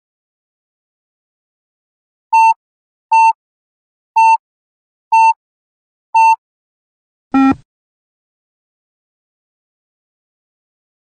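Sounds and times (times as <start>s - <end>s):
lower fuller beep: 7.4s - 7.6s
short high electronic beeps: 7.4s - 7.6s.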